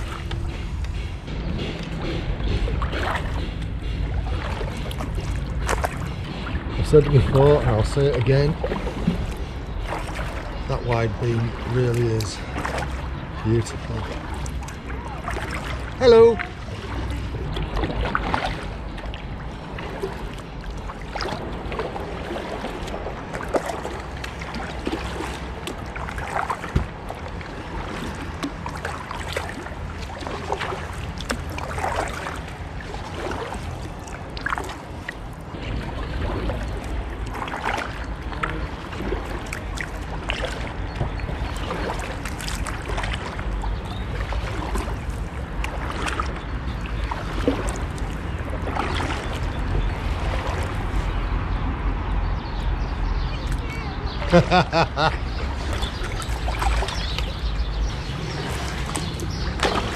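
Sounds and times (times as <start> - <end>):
low rumble: 0.0 - 24.8
paddle splashing in water: 0.0 - 59.9.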